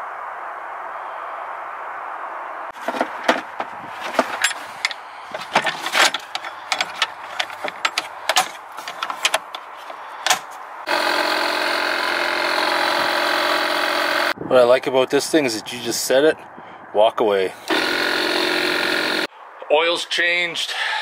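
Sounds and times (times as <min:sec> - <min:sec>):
tire inflator humming: 0:02.8 - 0:14.4, 0:17.6 - 0:19.3.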